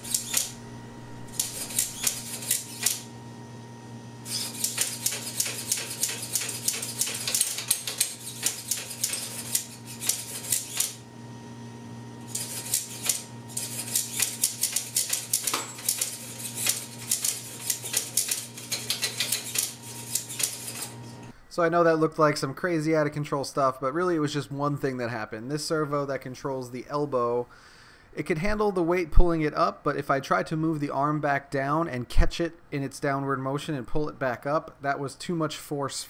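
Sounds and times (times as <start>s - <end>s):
robot arm servos clattering: 4.3s - 11.0s, 12.3s - 21.0s.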